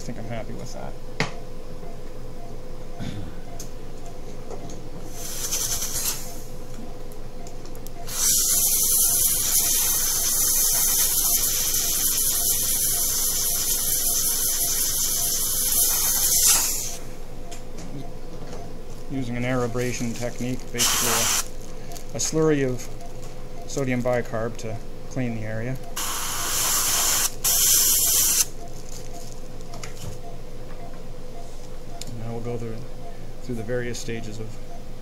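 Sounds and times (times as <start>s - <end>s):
dental air nozzle hissing: 5.1s - 6.5s, 8.0s - 17.1s, 20.8s - 21.5s, 26.0s - 28.5s.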